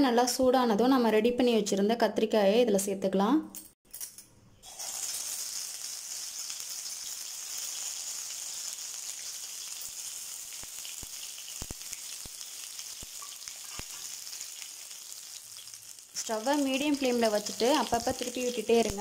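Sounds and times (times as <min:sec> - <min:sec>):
eggplants sizzling in oil: 0:04.6 - 0:19.0.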